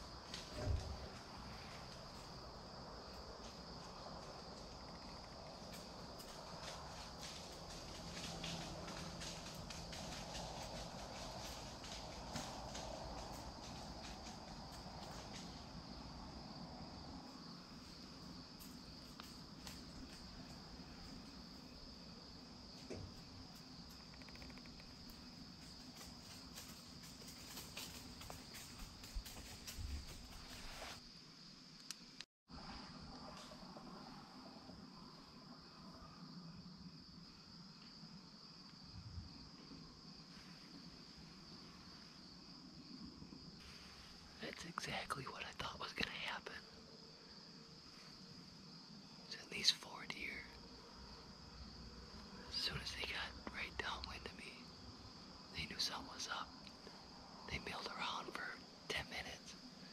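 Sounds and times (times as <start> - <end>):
crickets trilling: 0.0 - 59.9
insects chirring: 0.0 - 59.9
faint ticks: 3.1 - 15.6, 18.6 - 21.4, 22.8 - 30.9.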